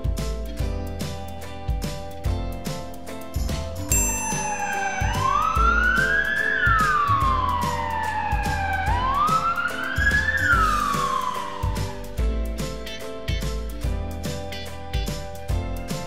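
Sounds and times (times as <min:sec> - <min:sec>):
music with a steady beat: 0:00.0 - 0:16.0
siren wailing: 0:04.4 - 0:12.2.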